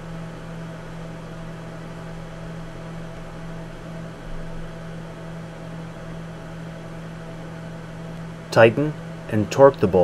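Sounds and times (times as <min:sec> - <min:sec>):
constant hiss: 0:08.0 - 0:10.0.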